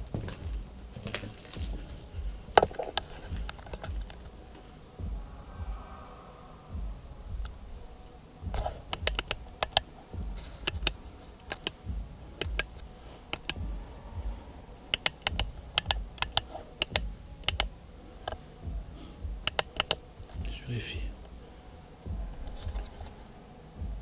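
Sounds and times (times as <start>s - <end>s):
footsteps walking: 0.0s - 6.1s, 22.0s - 24.0s
sharp clicks and crunches: 10.6s - 11.8s, 19.5s - 20.0s.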